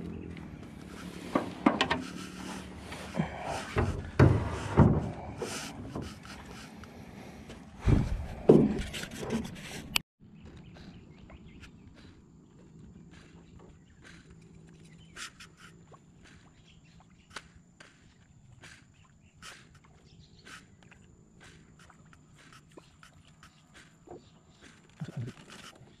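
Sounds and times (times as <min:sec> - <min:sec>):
handling noise rubbing: 0:00.6 - 0:10.0.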